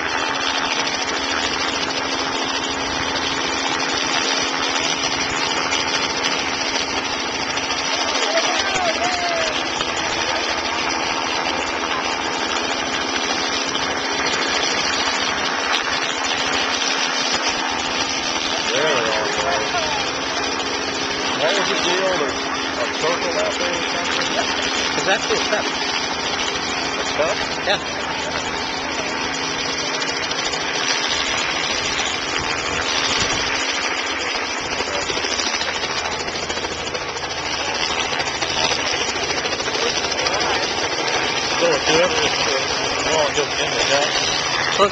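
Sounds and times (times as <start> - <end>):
helicopter hovering: 0.0 - 44.9.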